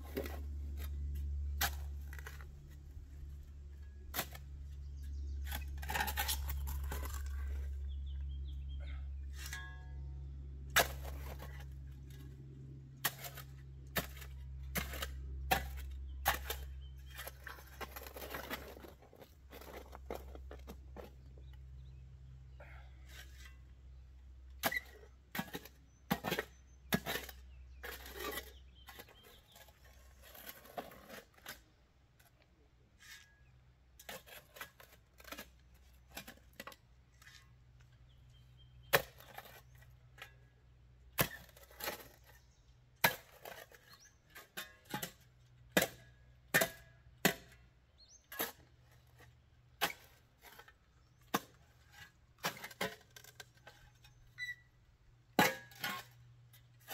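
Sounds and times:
digging tool striking rocky soil: 0:00.0 - 0:02.8, 0:03.9 - 0:08.0, 0:10.7 - 0:12.2, 0:13.0 - 0:21.5, 0:38.8 - 0:40.4, 0:41.1 - 0:54.2, 0:55.3 - 0:56.9
scraping scoops of soil: 0:00.0 - 0:56.9.

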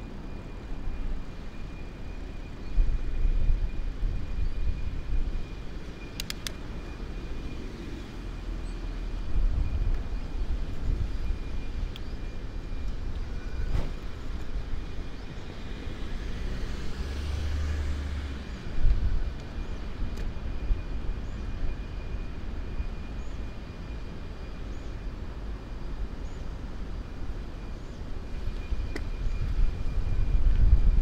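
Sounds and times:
road traffic rumble: 0:00.0 - 0:31.0
vehicle passing: 0:15.9 - 0:18.7.

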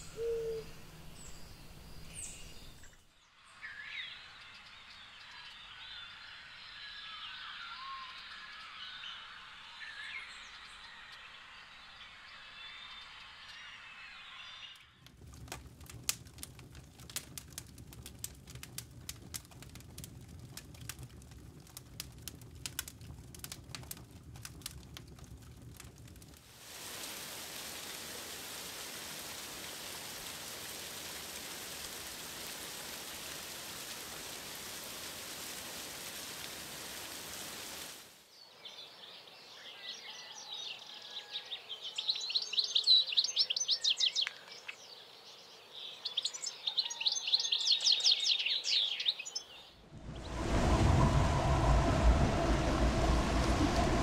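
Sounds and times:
birds singing high trills: 0:00.0 - 0:03.0
wood embers crackling and popping: 0:15.0 - 0:38.2, 0:49.9 - 0:54.0
flowing water rushing: 0:25.0 - 0:38.2, 0:49.9 - 0:54.0.

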